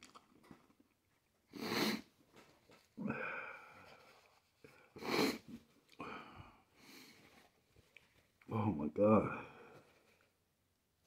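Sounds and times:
man sniffing: 1.5 - 2.1, 4.9 - 6.2
man breathing hard: 3.0 - 5.4, 6.0 - 7.3.

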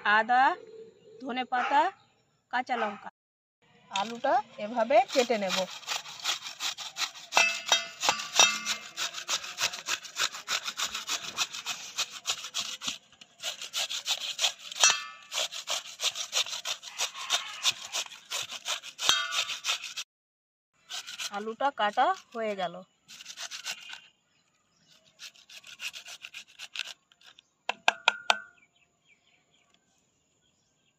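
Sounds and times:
potato grating on metal grater: 4.0 - 20.1, 20.8 - 24.0, 24.9 - 27.4.

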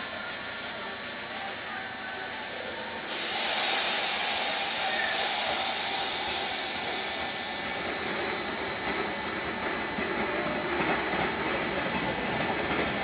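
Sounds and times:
train motor and wheel rumble: 0.0 - 13.0
air hissing: 3.1 - 10.7.

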